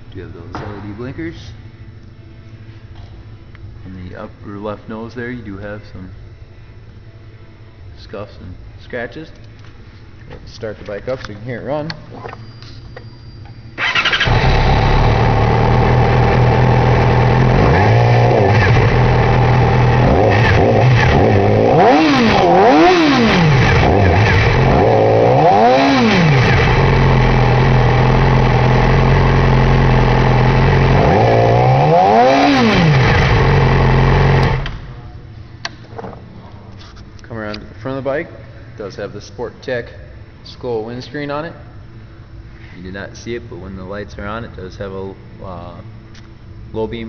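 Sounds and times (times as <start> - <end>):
motorcycle engine idling and revving: 13.8 - 34.9.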